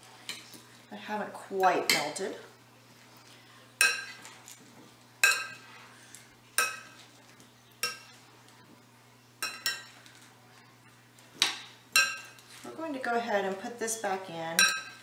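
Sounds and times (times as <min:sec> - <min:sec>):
metal spoon clinking glass bowl: 0:14.6 - 0:15.0.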